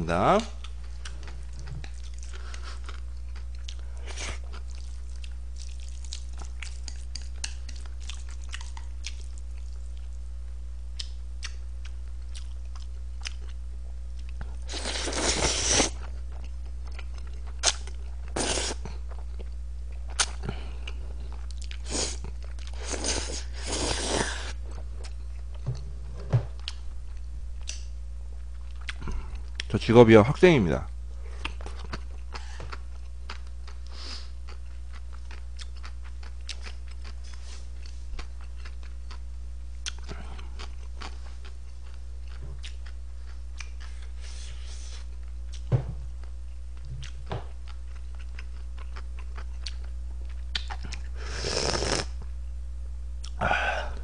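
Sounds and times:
chewing: 0.6 - 10.2, 11.0 - 13.6, 14.2 - 25.5, 34.5 - 39.2, 39.8 - 44.1, 46.8 - 51.1
slurping noodles: 14.7 - 16.0, 22.8 - 24.6, 51.3 - 52.2.

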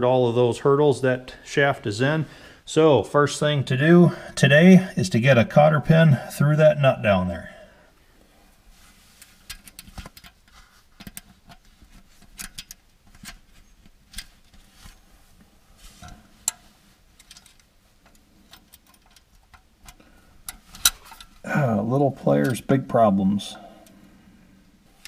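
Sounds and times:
small metallic clicks and ticks: 9.2 - 15.0, 16.0 - 21.4.

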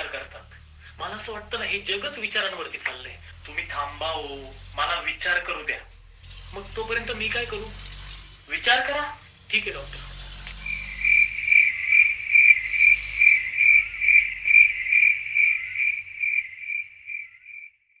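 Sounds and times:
cricket chirping: 10.5 - 18.0.

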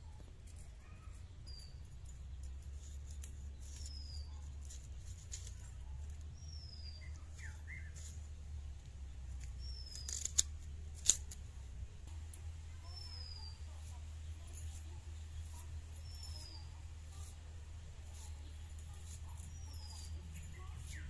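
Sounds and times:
bird chirping: 0.0 - 10.7, 12.2 - 21.0
knife scraping onion skin: 2.7 - 8.2, 9.4 - 11.4, 12.9 - 21.0.

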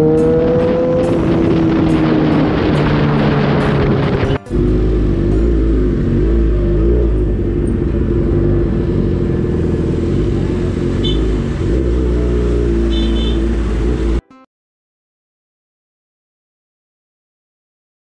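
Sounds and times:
motorcycle engine running: 0.0 - 14.2
road rumble: 0.0 - 14.2.

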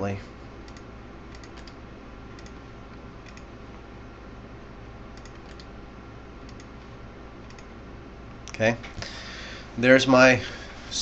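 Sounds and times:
steady low hum: 0.0 - 11.0
computer mouse clicks: 0.6 - 3.5, 5.2 - 5.7, 6.4 - 6.7, 7.4 - 7.7.

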